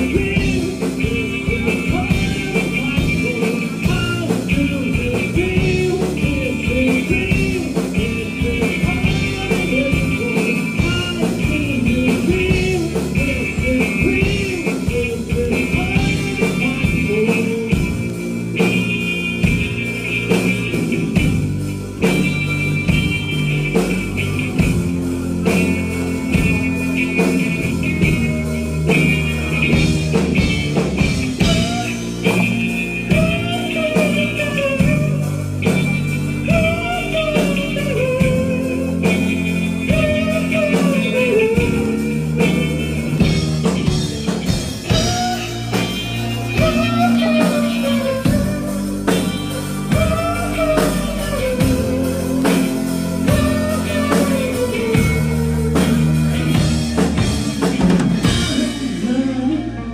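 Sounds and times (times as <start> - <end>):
bass guitar: 0.0 - 59.9
drums: 0.0 - 59.9
electric guitar: 0.0 - 59.9.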